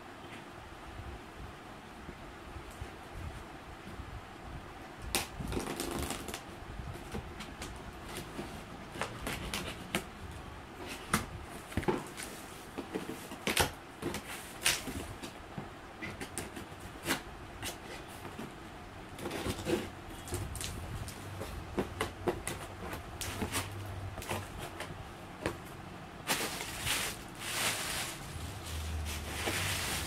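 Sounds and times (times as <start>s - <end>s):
sharp cardboard cracks: 5.1s - 6.4s, 11.0s - 15.4s
tape and cardboard rustling: 5.1s - 30.0s
knife slitting packing tape: 5.2s - 6.4s, 13.4s - 14.9s.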